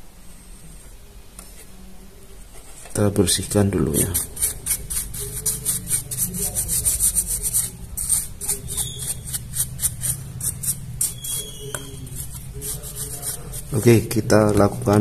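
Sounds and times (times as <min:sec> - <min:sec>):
bristle brush scrubbing circuit board: 0:03.4 - 0:15.0.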